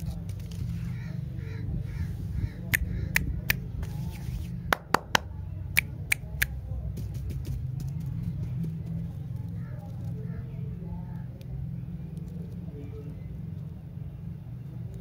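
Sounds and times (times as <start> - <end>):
finger snaps: 2.7 - 4.0, 4.7 - 6.6.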